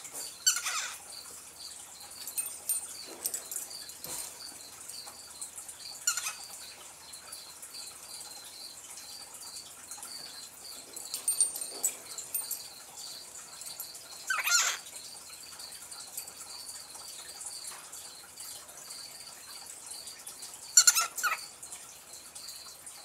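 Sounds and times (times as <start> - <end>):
cockatiel chirping: 0.4 - 1.0, 6.0 - 6.4, 14.3 - 14.8, 20.8 - 21.5.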